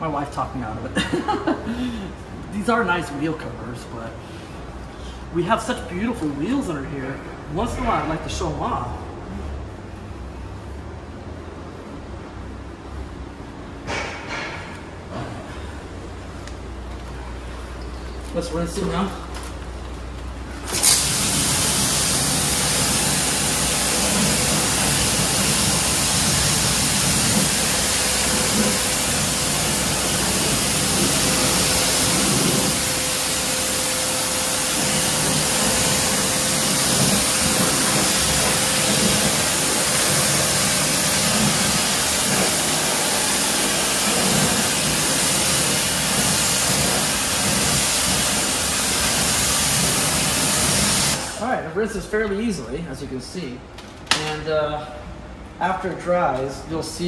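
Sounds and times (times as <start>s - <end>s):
water spraying from nozzle: 20.6s - 51.4s.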